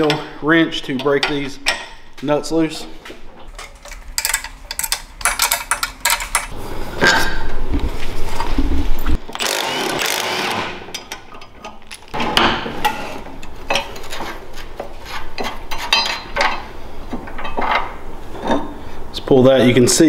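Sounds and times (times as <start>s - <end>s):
metal parts knocking: 3.5s - 6.6s
wrenches clinking on steel nuts: 3.5s - 6.6s, 10.9s - 12.2s.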